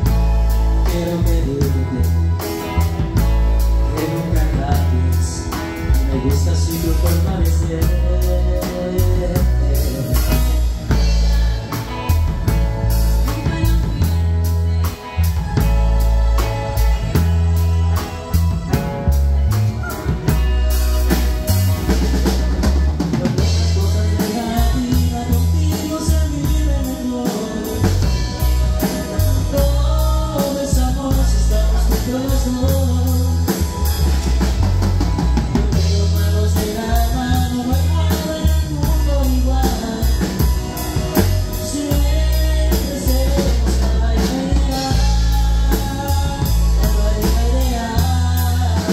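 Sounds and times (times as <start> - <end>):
live band playing dance music: 0.0 - 48.9
people singing: 0.8 - 12.3, 23.0 - 34.0, 35.6 - 48.9.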